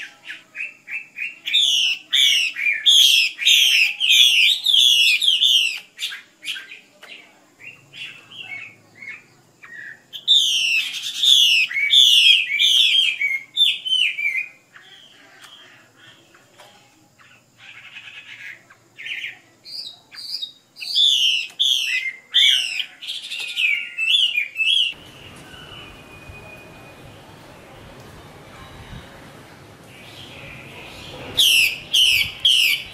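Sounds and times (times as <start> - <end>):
songbird calling: 0.0 - 27.8, 28.4 - 32.9
faint steady hiss: 24.8 - 32.9.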